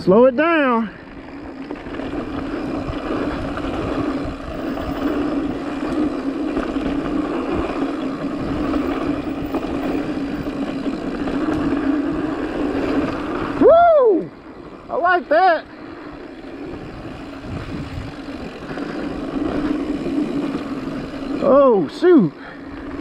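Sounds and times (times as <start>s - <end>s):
bike tyres humming on dirt: 0.0s - 23.0s
bike bumps and rattles: 1.2s - 13.6s, 16.1s - 23.0s
wind on microphone: 16.6s - 21.1s.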